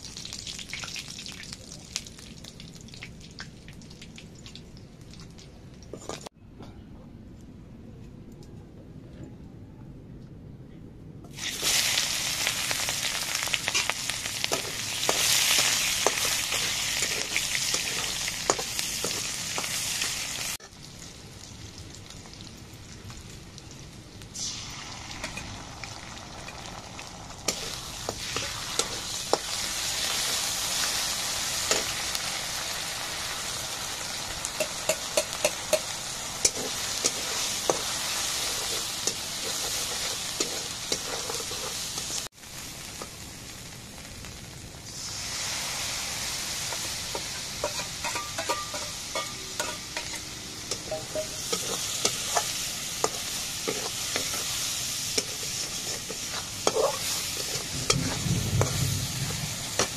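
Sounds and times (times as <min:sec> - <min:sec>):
onions sizzling in hot oil: 0:00.0 - 0:05.5, 0:11.3 - 0:59.9
metal spoon scraping a pan: 0:14.5 - 0:19.8, 0:27.5 - 0:30.9, 0:34.6 - 0:42.2, 0:47.1 - 0:59.9.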